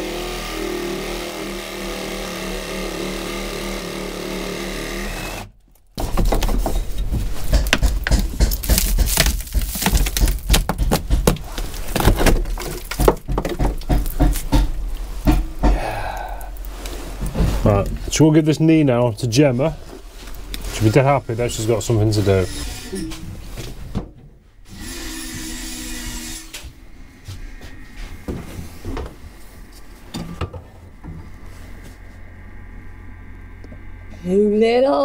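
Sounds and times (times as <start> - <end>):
reciprocating saw cutting wood: 0.0 - 5.5, 24.7 - 30.1
wood knocking and cracking: 5.6 - 16.1.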